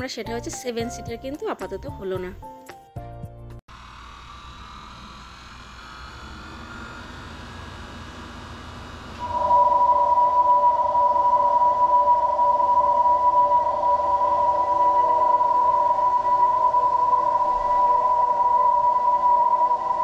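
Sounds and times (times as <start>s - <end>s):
electronic warning hum: 4.6s - 20.0s.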